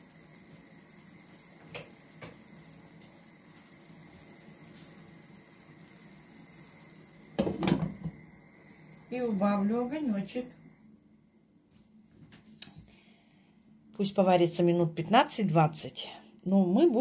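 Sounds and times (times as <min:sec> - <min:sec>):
stew sizzling in a pan: 0:00.0 - 0:10.5.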